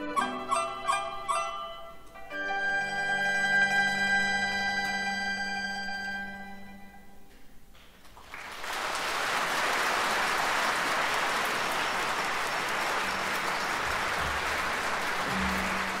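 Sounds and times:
audience applause: 0:08.0 - 0:16.0.

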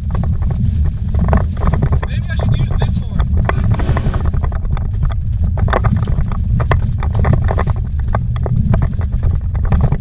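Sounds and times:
knocks and rattles over bumps: 0:00.0 - 0:10.0
vehicle engine and tyres rumbling: 0:00.0 - 0:10.0.

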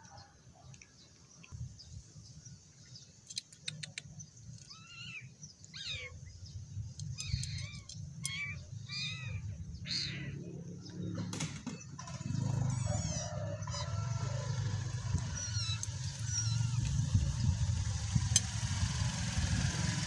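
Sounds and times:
small birds chirping: 0:00.0 - 0:20.0
sharp clicks: 0:03.2 - 0:04.8, 0:06.9 - 0:08.5.

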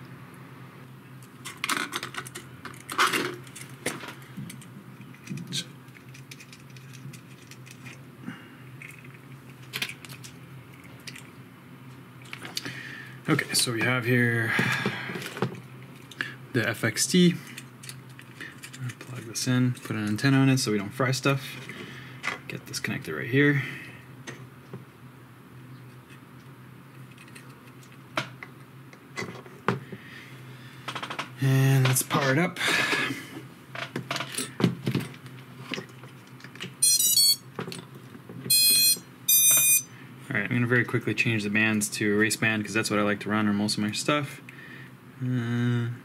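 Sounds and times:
steady low hum: 0:00.0 - 0:46.0
tools clicking and tapping: 0:38.5 - 0:39.8.

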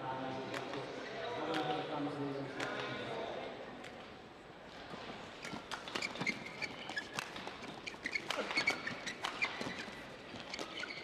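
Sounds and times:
shoes squeaking on court: 0:05.3 - 0:11.0.

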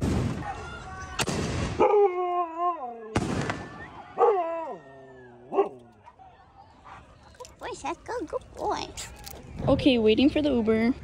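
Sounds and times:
fireworks banging and crackling: 0:00.0 - 0:00.6, 0:01.2 - 0:01.8, 0:03.2 - 0:03.8
dog howling: 0:04.1 - 0:05.9.

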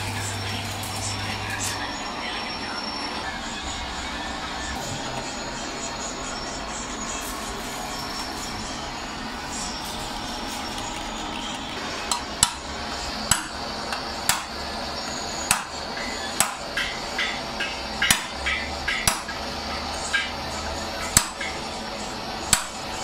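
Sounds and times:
hammer striking metal tank: 0:12.1 - 0:12.6, 0:13.3 - 0:14.5, 0:15.5 - 0:15.8, 0:16.4 - 0:19.4, 0:21.1 - 0:21.6, 0:22.5 - 0:22.8.

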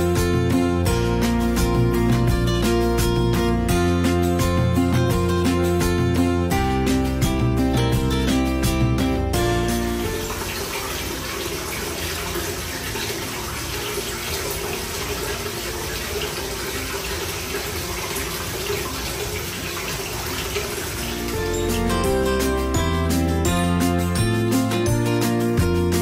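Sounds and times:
water running into bath: 0:00.0 - 0:26.0.

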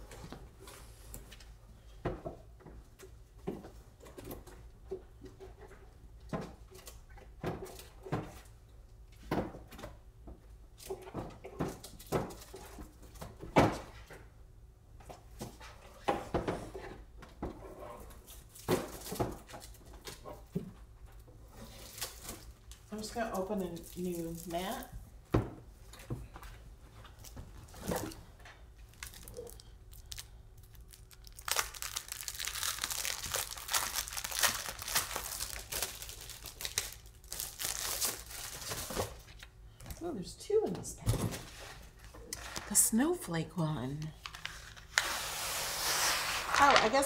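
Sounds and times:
knocks and rustles of handling: 0:15.0 - 0:29.6.

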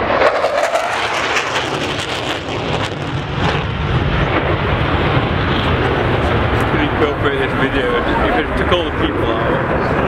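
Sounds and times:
jet flying low: 0:00.0 - 0:10.0.

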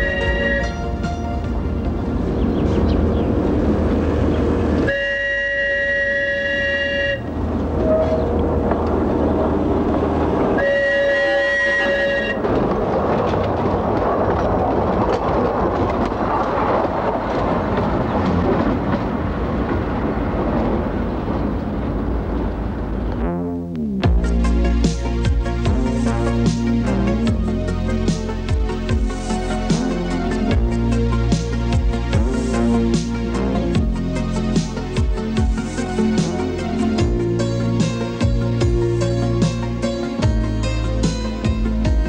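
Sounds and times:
train horn blasts: 0:00.0 - 0:01.0, 0:04.8 - 0:08.6, 0:10.5 - 0:12.4
train rumbling and clattering past: 0:00.0 - 0:23.2, 0:24.0 - 0:42.0.

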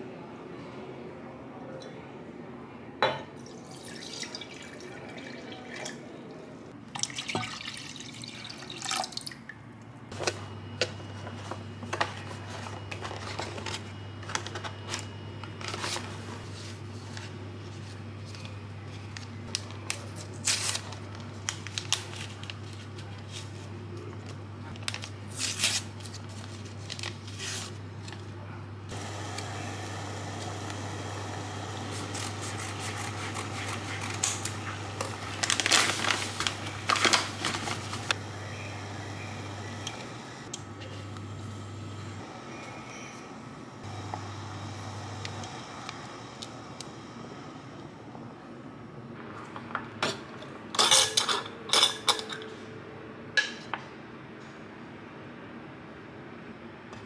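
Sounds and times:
steady low hum: 0:27.7 - 0:49.5.

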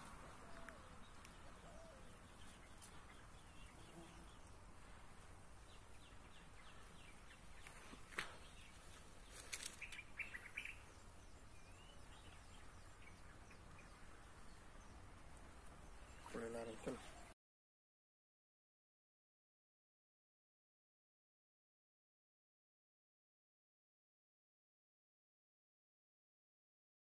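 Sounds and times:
bird chirps: 0:05.6 - 0:15.1.

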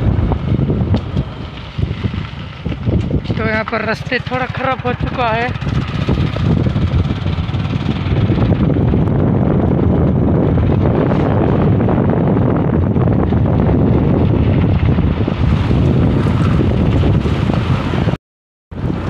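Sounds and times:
motorcycle engine and tyres: 0:00.0 - 0:19.0
wind on microphone: 0:00.0 - 0:19.0.

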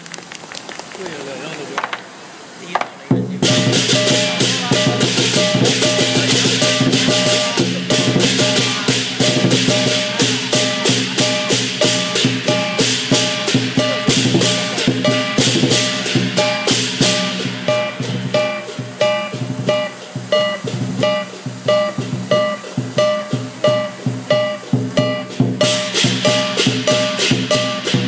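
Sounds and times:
percussion band drums cymbals gong: 0:03.1 - 0:28.0.

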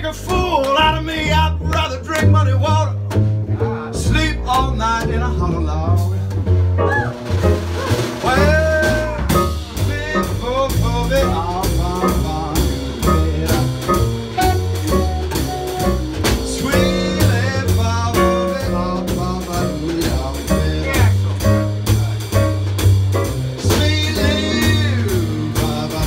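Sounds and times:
drum kit: 0:00.0 - 0:26.0
jazz blues band playing: 0:00.0 - 0:26.0
piano: 0:00.0 - 0:26.0
upright bass: 0:00.0 - 0:26.0
lead line with bending notes: 0:06.8 - 0:25.4.

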